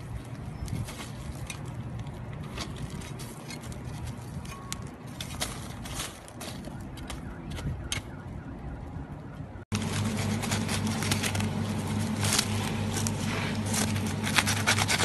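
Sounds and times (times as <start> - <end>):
trowel scraping gravelly soil: 0.0 - 6.7, 9.7 - 15.0.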